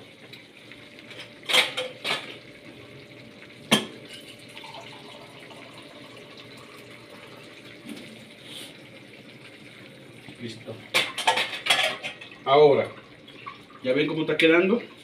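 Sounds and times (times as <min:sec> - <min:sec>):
faint hiss from pan: 0:08.3 - 0:08.9
water splashing into a pan: 0:10.3 - 0:13.9.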